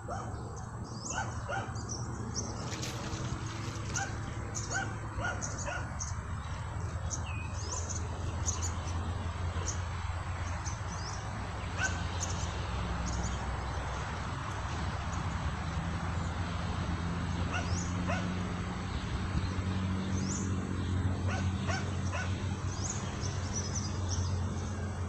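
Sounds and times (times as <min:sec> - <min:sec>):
birds chirping: 0:00.0 - 0:25.0
dog barking: 0:00.1 - 0:00.4, 0:01.1 - 0:01.8, 0:03.9 - 0:05.9, 0:11.8 - 0:12.0, 0:17.5 - 0:18.3, 0:21.3 - 0:22.4.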